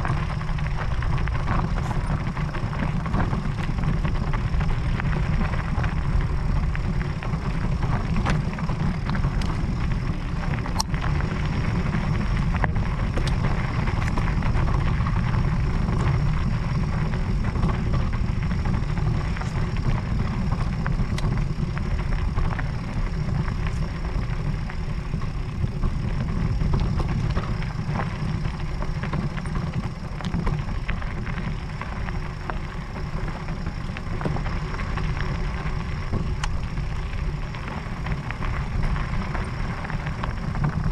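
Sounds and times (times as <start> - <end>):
bike tyres rolling on gravel: 0.0 - 40.9
small clicks and rattles: 0.0 - 40.9
wind rumble on microphone: 0.0 - 40.9.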